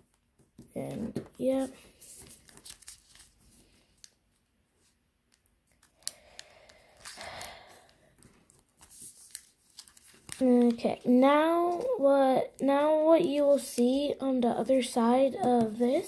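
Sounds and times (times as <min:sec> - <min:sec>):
paper rustling and crinkling: 0:00.9 - 0:04.2, 0:05.7 - 0:12.0.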